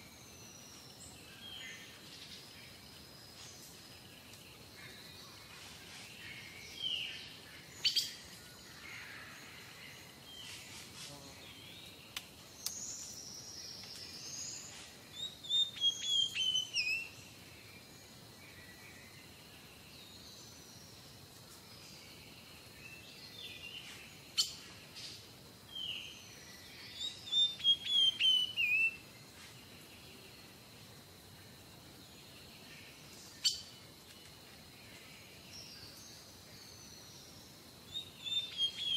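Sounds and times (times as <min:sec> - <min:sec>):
small birds chirping and singing: 0:00.0 - 0:38.9.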